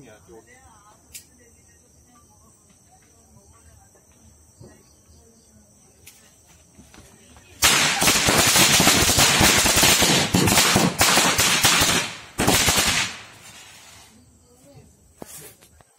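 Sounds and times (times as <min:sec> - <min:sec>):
firecrackers banging: 0:07.6 - 0:14.1.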